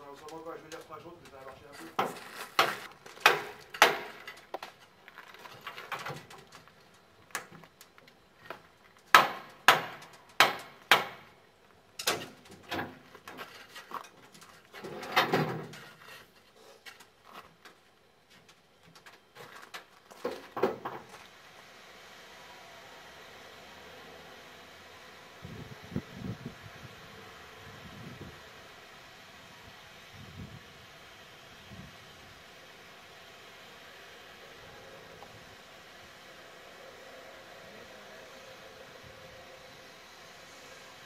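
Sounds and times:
longer rough noise: 20.7 - 41.0.

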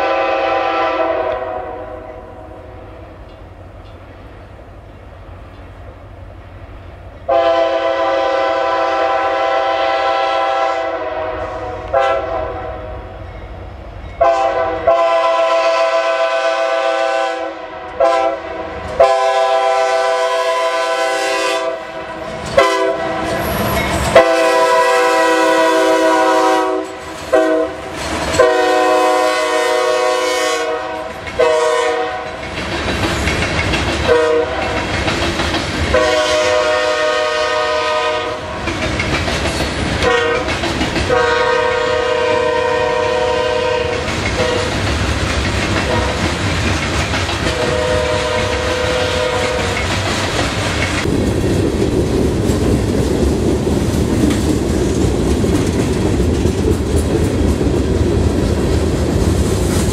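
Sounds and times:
locomotive air horn blasts: 0.0 - 2.3, 7.3 - 13.1, 14.2 - 32.3, 34.1 - 34.8, 35.9 - 38.6, 40.0 - 40.5, 41.1 - 44.8, 45.8 - 46.3, 47.5 - 49.8
train wheels rumbling on rails: 0.0 - 59.9.

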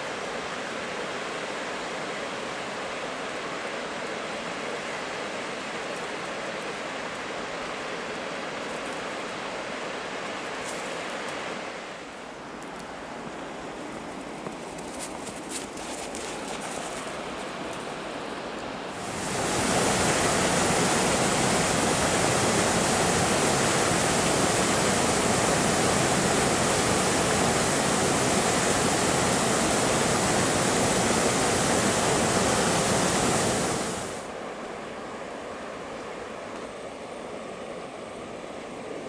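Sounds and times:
water rushing over cascade: 0.0 - 12.6, 18.8 - 36.5.

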